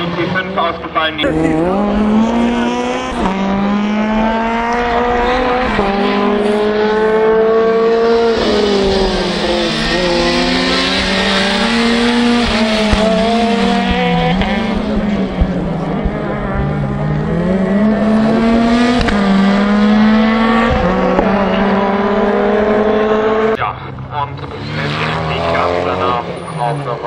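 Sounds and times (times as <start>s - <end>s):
car engine revving hard: 1.2s - 23.6s, 24.4s - 27.0s.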